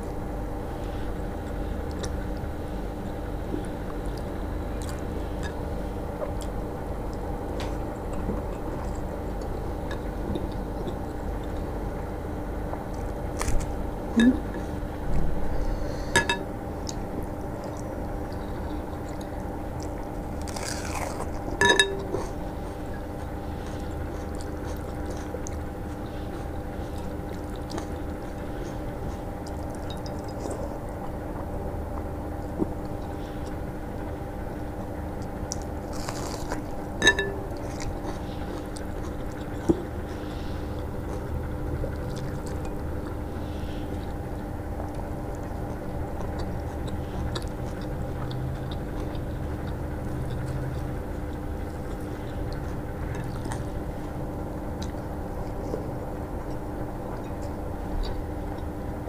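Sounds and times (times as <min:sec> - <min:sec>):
steady hum: 0:00.0 - 0:59.0
chewing: 0:03.5 - 0:05.6, 0:16.8 - 0:33.7, 0:34.6 - 0:58.9.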